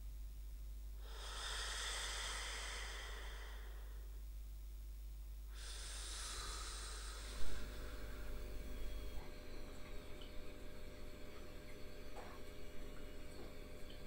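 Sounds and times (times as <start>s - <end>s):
long breathy hisses: 1.0s - 4.2s, 5.5s - 8.4s.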